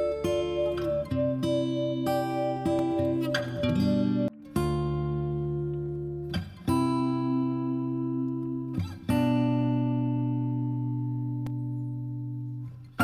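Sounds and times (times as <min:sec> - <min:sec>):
sustained ringing chords: 0:00.0 - 0:04.4.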